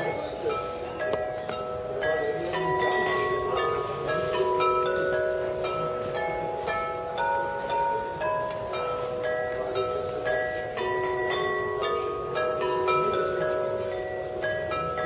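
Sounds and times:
porcelain bells melody: 0:00.0 - 0:15.0.

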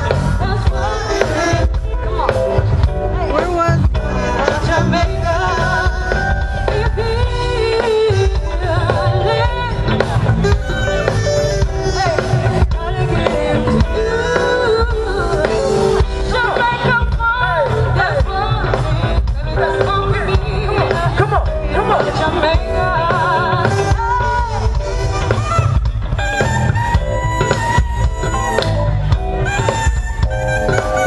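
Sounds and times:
drum kit: 0:00.0 - 0:31.0
steady bass line: 0:00.0 - 0:31.0
saxophone melody: 0:04.0 - 0:16.5, 0:22.4 - 0:31.0.

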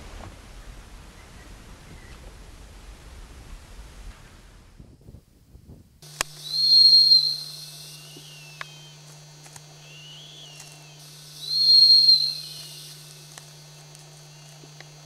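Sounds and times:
low recording hum: 0:00.0 - 0:15.0
fainter lower hawk calls: 0:06.0 - 0:15.0
hawk whistled screams: 0:06.1 - 0:14.4.

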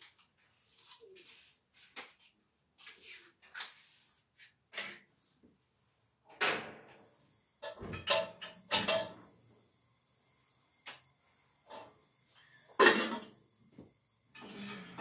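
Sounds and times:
pans knocking and banging: 0:07.6 - 0:09.4, 0:12.6 - 0:13.4.

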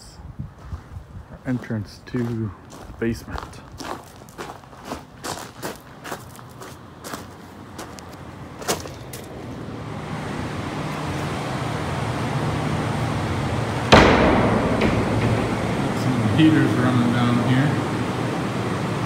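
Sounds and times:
footsteps on gravel: 0:01.5 - 0:09.3
heater humming: 0:08.0 - 0:19.0
loud thump: 0:13.9 - 0:17.9.

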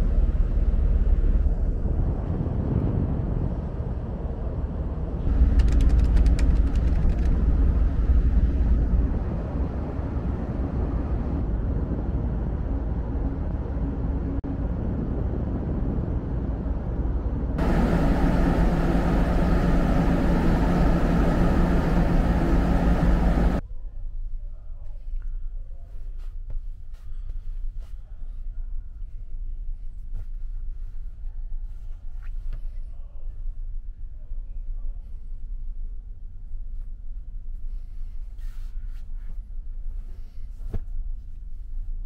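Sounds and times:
low ship machinery rumble: 0:00.0 - 0:23.6
wind buffeting microphone: 0:00.0 - 0:23.6
machinery hum with held tones: 0:17.6 - 0:23.6.

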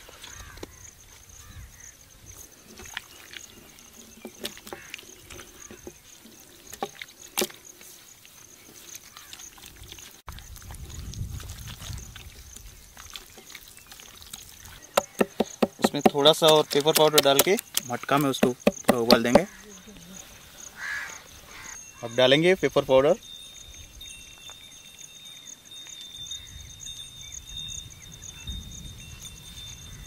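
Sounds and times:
high insect drone: 0:00.0 - 0:30.0
hands squelching raw chicken: 0:02.6 - 0:19.6.

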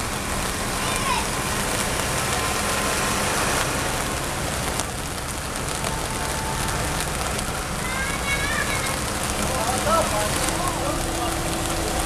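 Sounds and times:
car driving through water: 0:00.0 - 0:12.0
heavy rain on street and cars: 0:00.0 - 0:12.0
tractor driving through water: 0:00.0 - 0:12.0.

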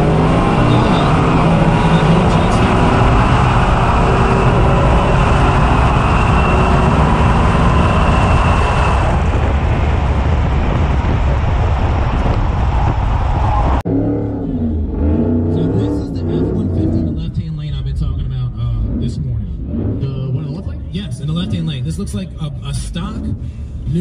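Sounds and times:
supercharged engine running hard: 0:00.0 - 0:17.5
road and wind noise: 0:00.0 - 0:24.0.

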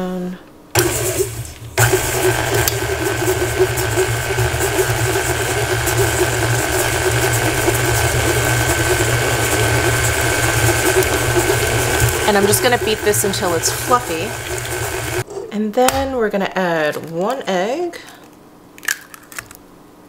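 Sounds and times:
stand mixer motor whining: 0:00.8 - 0:15.2.

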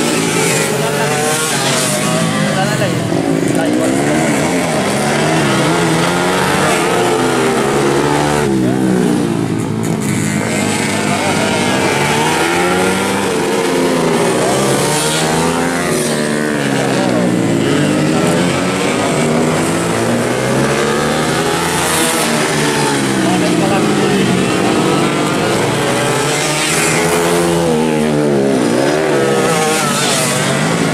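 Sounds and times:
motorcycles revving past: 0:00.0 - 0:30.9.

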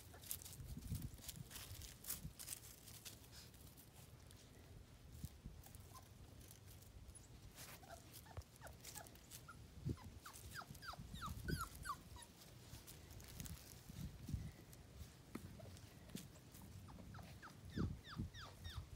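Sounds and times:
rustling dry leaves underfoot: 0:00.0 - 0:17.5
puppy whimpering: 0:07.1 - 0:12.5, 0:16.7 - 0:18.9.

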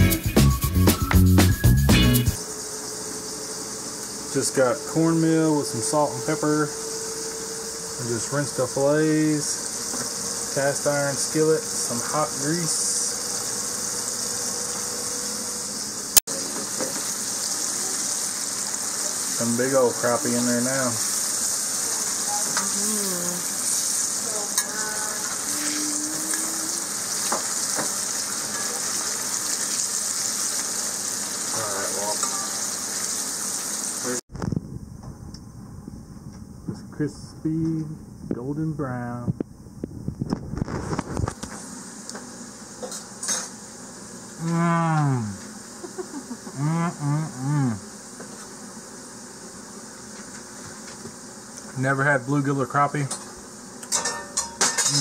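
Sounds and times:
fish frying in hot grease: 0:08.2 - 0:34.2, 0:45.5 - 0:46.4, 0:53.8 - 0:55.0
man humming while eating: 0:24.6 - 0:27.2, 0:44.4 - 0:47.9.

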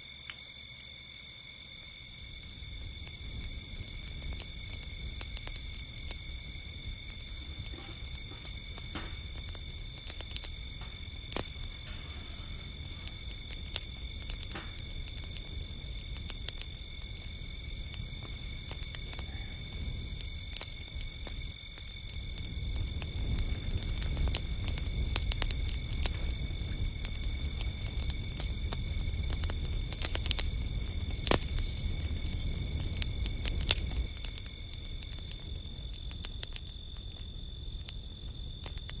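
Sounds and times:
insects trilling: 0:00.0 - 0:39.0
firewood crackling and popping: 0:01.5 - 0:39.0
low rumble of flames: 0:01.5 - 0:39.0.

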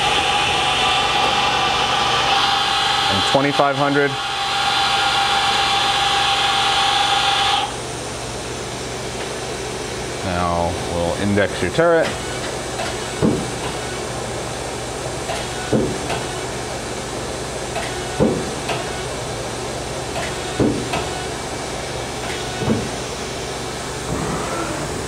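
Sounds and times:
machine hum: 0:00.0 - 0:25.0
tool turret clunk: 0:12.0 - 0:14.0, 0:15.2 - 0:16.5, 0:17.7 - 0:19.0, 0:20.1 - 0:21.3, 0:22.2 - 0:23.0.

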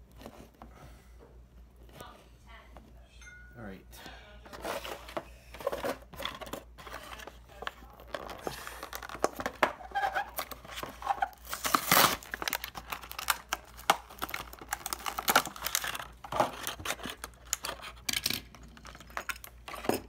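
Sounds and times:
plastic packaging crackling and tearing: 0:04.5 - 0:20.0.

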